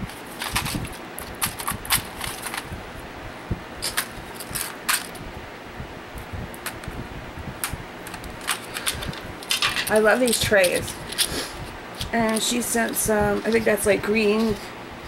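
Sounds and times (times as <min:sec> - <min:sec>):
room fan noise: 0:00.0 - 0:15.0
plastic case clicking and rattling: 0:00.1 - 0:02.7, 0:03.8 - 0:05.2, 0:07.6 - 0:11.3.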